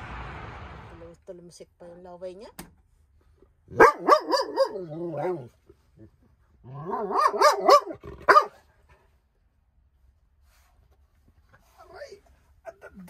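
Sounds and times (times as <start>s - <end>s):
dog barking: 3.7s - 5.5s, 6.9s - 8.6s.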